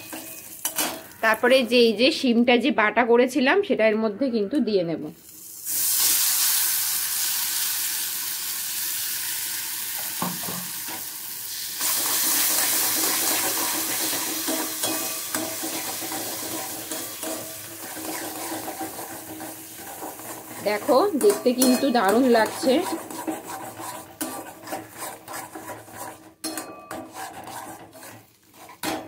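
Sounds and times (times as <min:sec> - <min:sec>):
paste sizzling in hot oil: 0:05.2 - 0:29.0
spatula scraping pan: 0:11.8 - 0:29.0.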